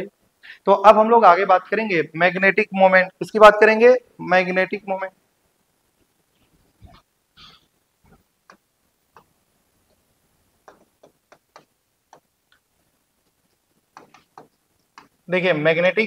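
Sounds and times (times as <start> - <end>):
light taps and clicks: 10.6 - 15.2.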